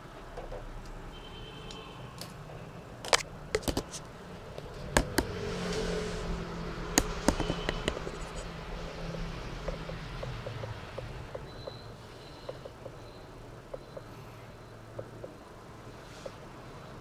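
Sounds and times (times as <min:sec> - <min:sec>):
sharp clicks and taps: 0:03.1 - 0:04.0, 0:04.6 - 0:05.4, 0:07.0 - 0:08.4.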